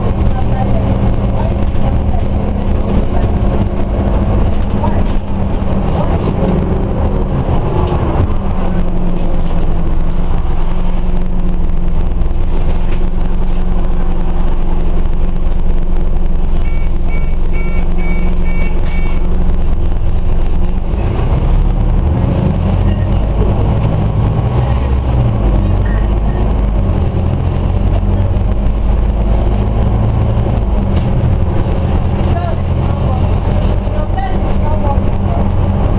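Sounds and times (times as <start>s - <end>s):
bus diesel engine: 0.0s - 35.9s
electronic beeps: 16.5s - 19.3s.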